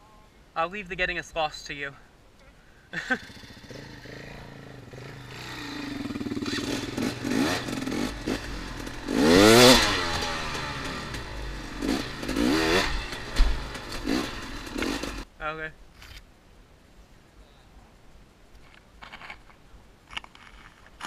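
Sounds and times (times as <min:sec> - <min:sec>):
dirt bike engine revving: 0:03.0 - 0:15.3.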